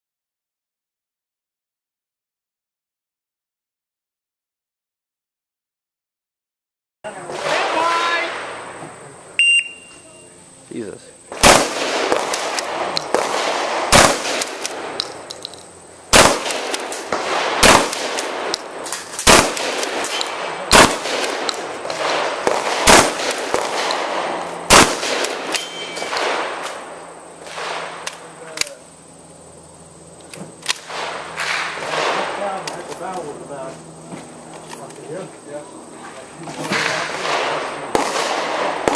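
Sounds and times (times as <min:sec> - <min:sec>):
shotgun shots: 0:07.2 - 0:08.7, 0:11.3 - 0:15.1, 0:16.1 - 0:28.8, 0:30.6 - 0:33.0, 0:36.6 - 0:38.9.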